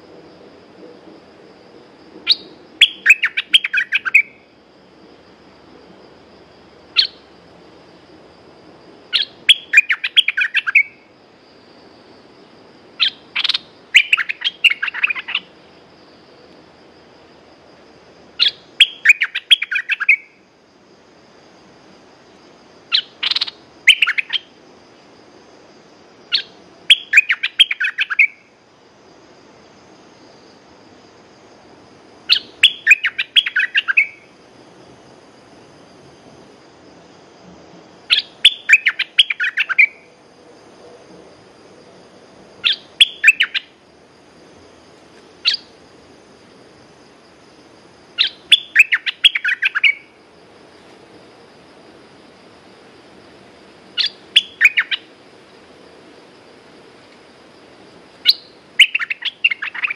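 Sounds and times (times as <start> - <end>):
bird chirping: 2.3 - 4.4, 6.9 - 7.3, 9.1 - 11.1, 13.0 - 15.5, 18.4 - 20.4, 22.9 - 24.5, 26.3 - 28.5, 32.3 - 34.3, 38.1 - 40.0, 42.6 - 43.8, 45.4 - 45.8, 48.2 - 50.1, 54.0 - 55.1, 58.2 - 59.9.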